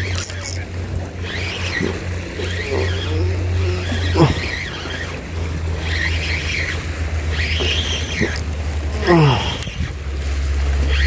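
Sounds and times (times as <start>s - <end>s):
fishing reel cranking: 0.0s - 11.0s
steady low drone: 0.0s - 11.0s
high wavering squeals: 1.2s - 9.9s.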